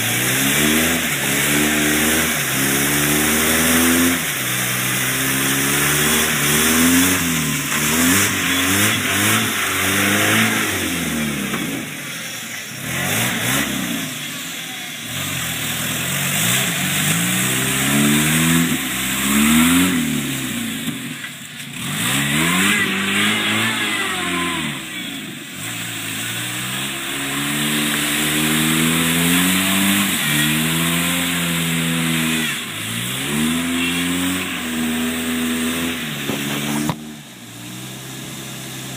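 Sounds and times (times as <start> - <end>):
water spraying off spinning wheel: 0.0 - 13.8
car engine revving: 0.0 - 38.9.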